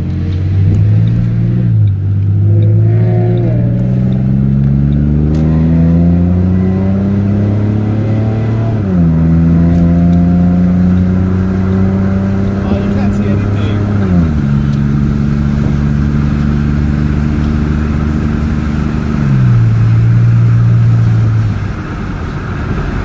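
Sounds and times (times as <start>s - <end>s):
car engine accelerating: 0.0s - 23.0s.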